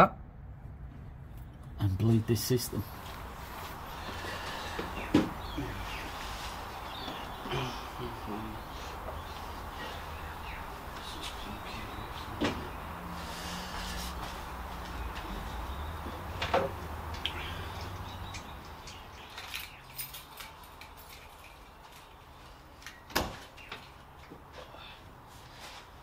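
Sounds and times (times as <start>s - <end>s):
low hum: 0.0s - 18.9s.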